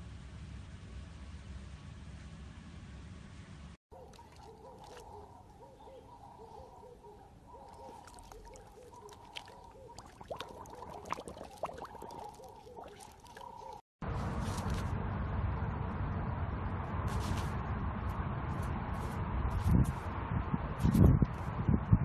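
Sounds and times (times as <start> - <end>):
dog lapping water: 4.0 - 5.3, 7.6 - 13.8
faint warbling call: 4.0 - 13.8.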